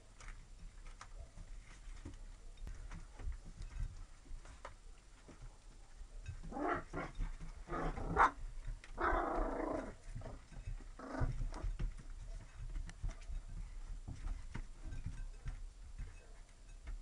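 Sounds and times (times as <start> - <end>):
puppies growling: 6.5 - 11.7.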